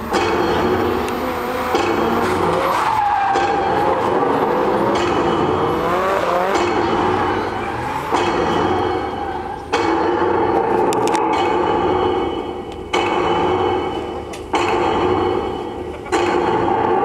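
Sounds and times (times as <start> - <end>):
tyres squealing and skidding: 0.0 - 10.5
car engines revving: 0.0 - 17.0.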